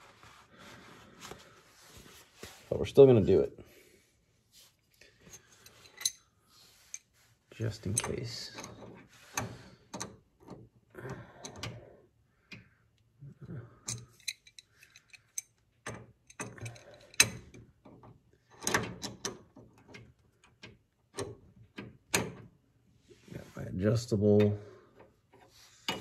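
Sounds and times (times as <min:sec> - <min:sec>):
wrenches clinking on metal fitting: 0:05.3 - 0:06.2, 0:07.7 - 0:08.9, 0:13.8 - 0:17.6.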